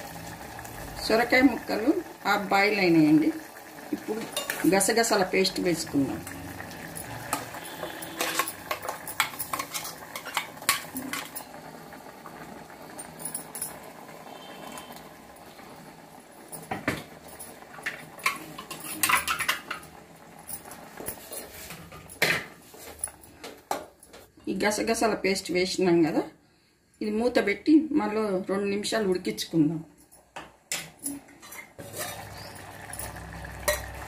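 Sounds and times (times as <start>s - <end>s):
ladle clinking and scraping pot: 4.2s - 4.7s, 6.6s - 11.5s, 16.6s - 20.0s, 20.6s - 24.2s, 30.7s - 34.0s.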